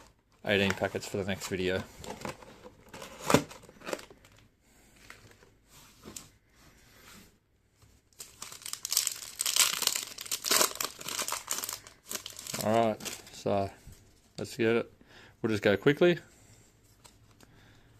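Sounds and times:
faint rustles of handling packets: 0:00.0 - 0:14.8
foil packet crinkling: 0:08.2 - 0:13.4.

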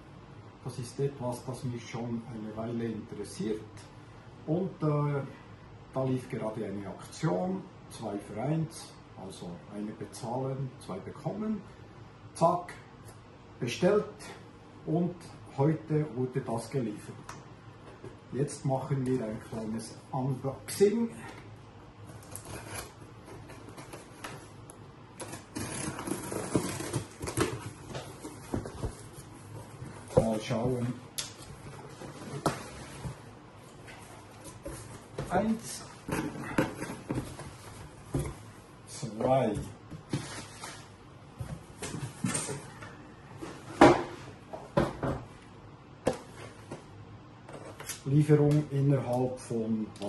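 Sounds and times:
packing tape slitting: 0:25.2 - 0:27.7
cardboard scraping and rustling: 0:25.2 - 0:30.9, 0:31.6 - 0:38.5.

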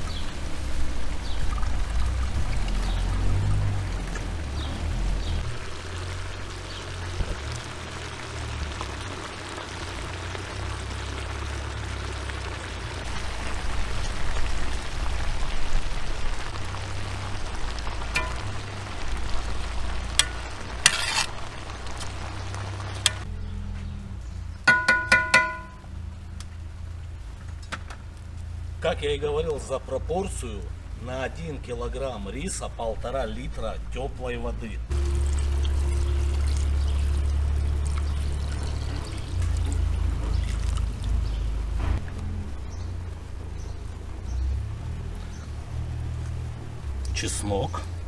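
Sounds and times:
food sizzling in hot fat: 0:00.0 - 0:23.3, 0:34.9 - 0:48.0
metal skimmer scraping: 0:20.1 - 0:21.4
skimmer knocking on pot rim: 0:24.7 - 0:25.8.

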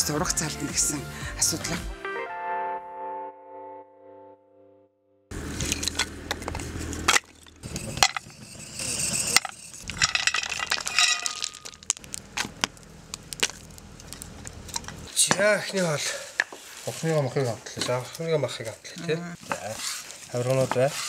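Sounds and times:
music: 0:00.0 - 0:05.3
wood fire crackling: 0:05.3 - 0:21.0.

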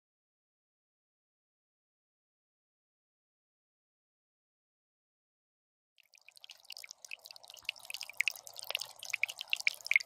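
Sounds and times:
water trickling from fountain: 0:06.0 - 0:10.0.

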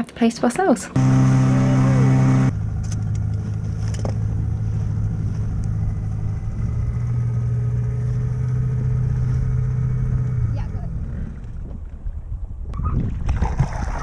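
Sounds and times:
small outboard motor running: 0:01.0 - 0:11.7.

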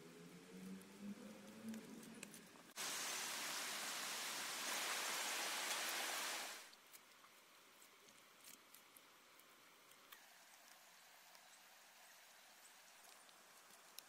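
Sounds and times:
rain on leafy plants: 0:00.1 - 0:07.7.

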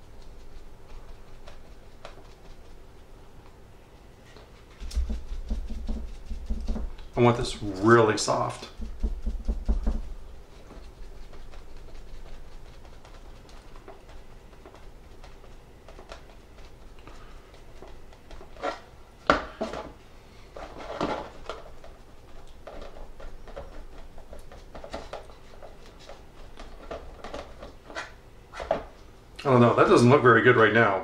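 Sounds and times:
rubbing scrapes: 0:00.0 - 0:03.1, 0:03.9 - 0:18.9
sponge dabbing: 0:00.0 - 0:19.0
small taps and knocks: 0:04.3 - 0:07.1.

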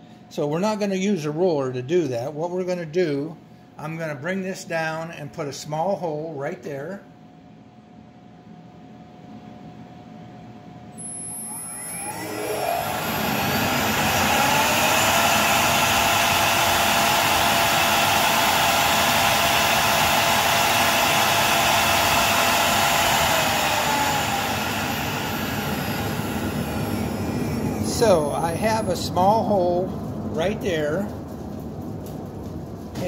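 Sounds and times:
router spindle whining: 0:11.0 - 0:29.7.

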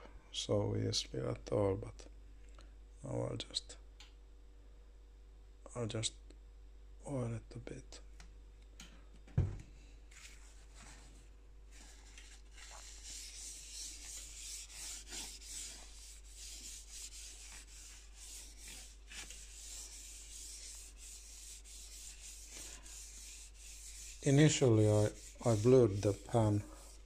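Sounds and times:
scratchy rubbing on a steel griddle: 0:11.8 - 0:27.0.

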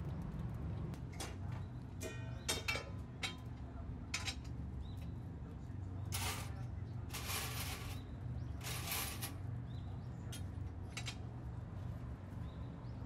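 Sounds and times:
steady low hum: 0:00.0 - 0:13.0
metal skewers rattling in tray: 0:06.1 - 0:06.5, 0:07.1 - 0:08.0, 0:08.6 - 0:09.4.

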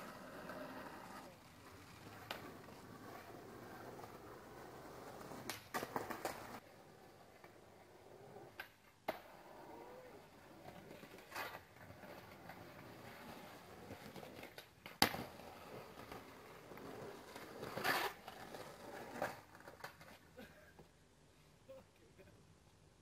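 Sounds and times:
background hiss: 0:00.0 - 0:23.0
skateboard knocking on concrete: 0:03.9 - 0:06.6, 0:10.7 - 0:20.2.

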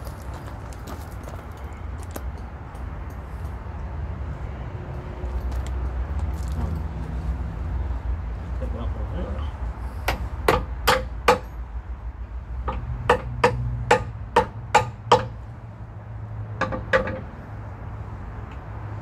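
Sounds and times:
hammer striking metal: 0:10.1 - 0:11.5, 0:12.7 - 0:15.4.

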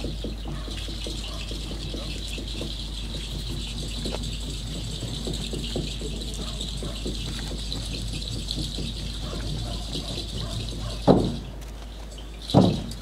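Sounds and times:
loud low thumps: 0:12.5 - 0:13.0.

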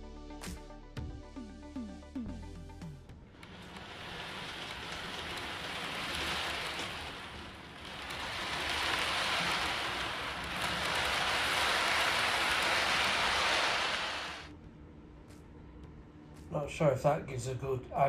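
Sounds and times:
model train wheels rolling on rails: 0:03.3 - 0:14.5.

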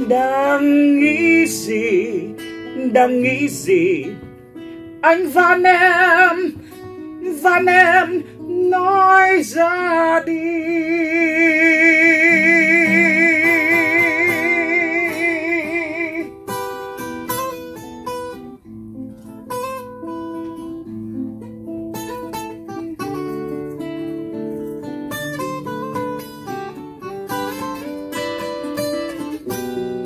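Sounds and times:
man singing long vibrato note: 0:00.0 - 0:04.2, 0:07.2 - 0:16.3
acoustic guitars picking: 0:00.0 - 0:30.0.

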